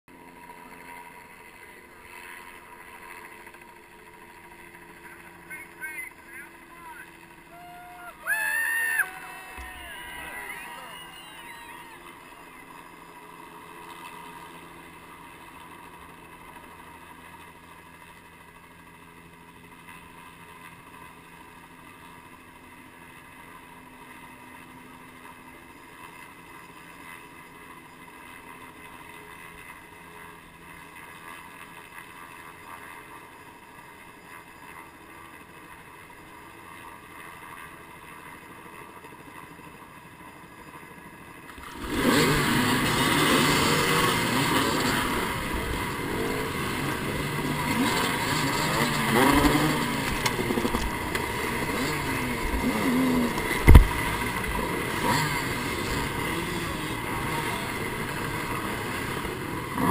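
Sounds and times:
dirt bike engines idling: 0.2 - 18.7, 34.0 - 59.9.

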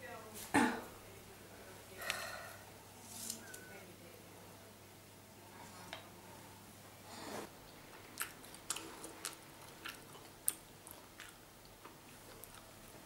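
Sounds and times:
breath: 2.0 - 2.7.

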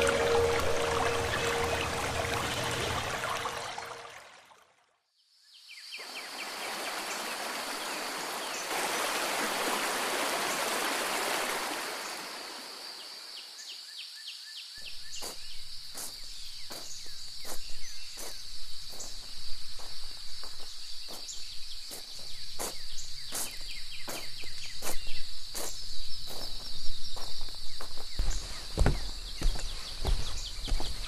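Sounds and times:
stream rushing water: 0.0 - 4.7, 6.2 - 12.8
high-pitched insect trill: 14.8 - 30.2
footsteps: 15.2 - 31.0.

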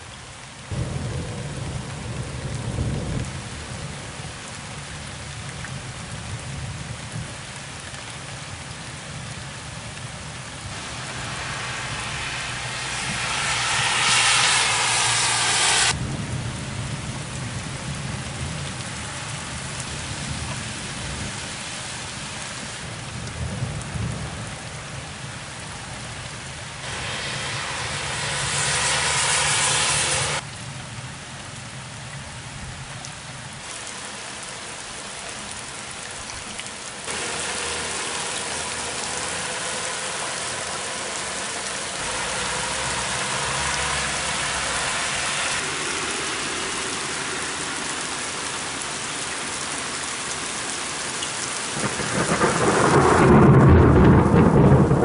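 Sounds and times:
rain falling: 0.0 - 55.0
thunder rumble: 0.7 - 4.4, 8.2 - 21.4, 22.9 - 31.0, 51.5 - 55.0.

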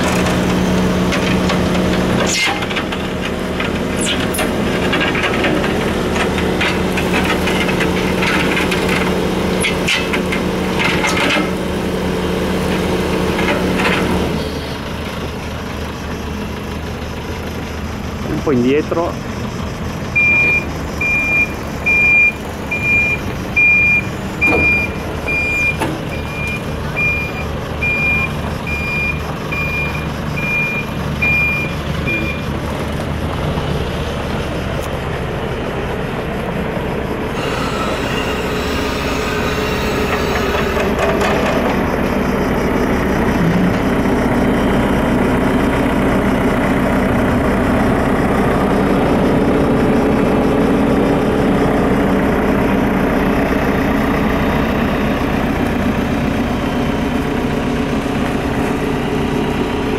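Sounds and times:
engine running: 0.0 - 59.9
reversing alarm beeping: 18.8 - 32.7, 37.1 - 41.9.

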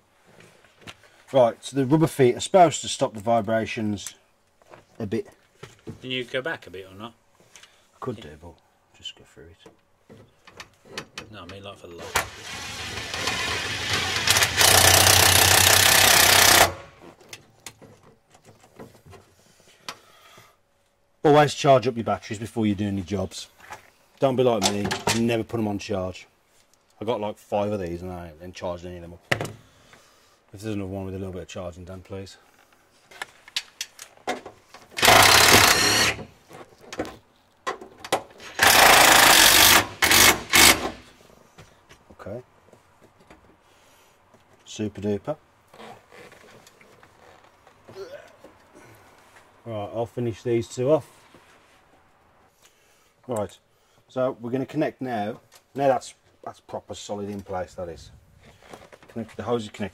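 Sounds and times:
cordless drill boring through metal: 12.1 - 16.9, 35.0 - 36.2, 38.4 - 41.0
power driver running fasteners: 12.1 - 17.0, 34.9 - 36.3, 38.4 - 41.1.

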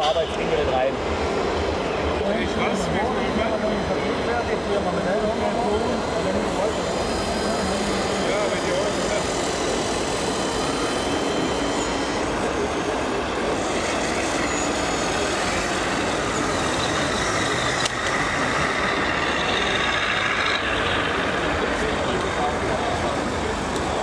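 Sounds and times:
busy hall background noise: 0.0 - 24.0.

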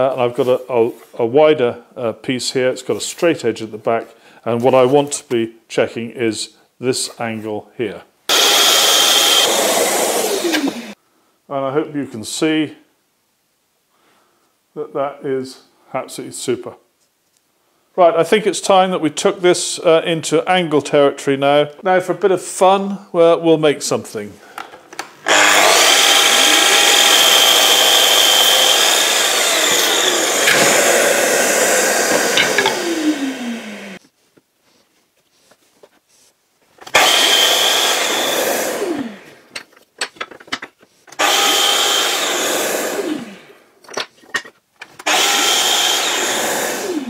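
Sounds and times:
mitre saw whining and winding down: 8.3 - 11.0, 25.2 - 34.0, 36.9 - 39.4, 41.2 - 43.5, 45.0 - 47.0
saw blade cutting wood: 8.3 - 11.0, 25.3 - 34.0, 36.8 - 39.2, 41.1 - 43.3, 45.0 - 47.0.

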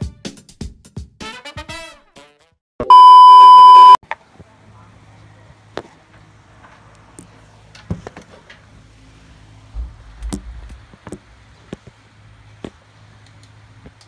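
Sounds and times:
steady low hum: 8.9 - 12.6
low rumble: 9.8 - 10.9.

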